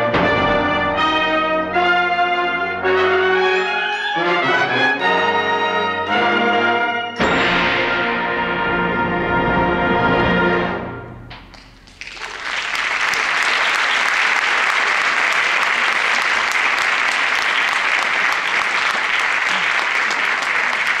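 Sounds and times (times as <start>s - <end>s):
audience applause: 11.9s - 21.0s.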